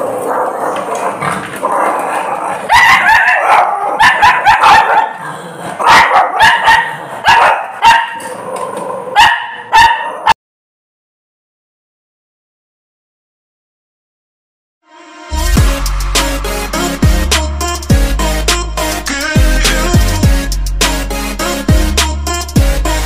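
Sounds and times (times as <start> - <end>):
dogs barking: 0.0 - 10.4.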